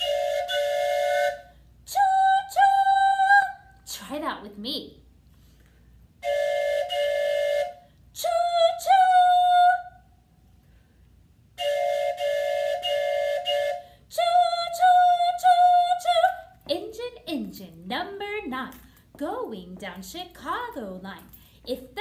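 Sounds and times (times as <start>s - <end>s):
wooden train whistle toots: 0.0s - 1.5s, 6.2s - 7.9s, 11.6s - 13.9s.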